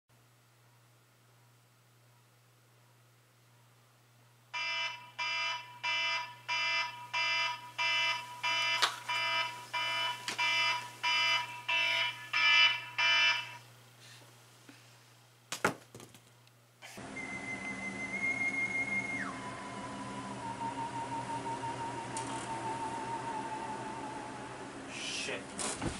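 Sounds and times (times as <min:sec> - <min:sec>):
electronic alarm beeping: 0:04.6 - 0:13.6.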